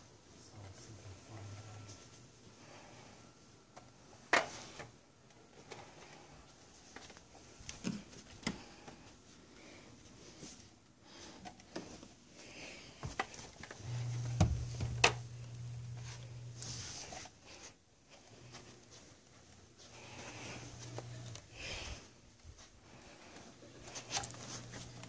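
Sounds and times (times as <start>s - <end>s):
low steady hum: 13.6s - 25.0s.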